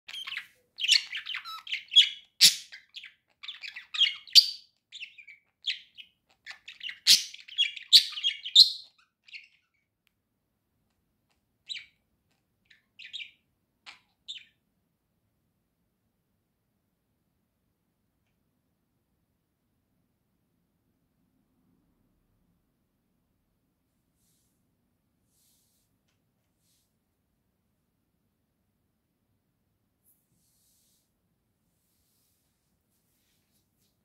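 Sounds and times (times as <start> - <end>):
budgerigar warbling and chirping: 0.1 - 9.8, 11.7 - 12.0, 12.7 - 14.6.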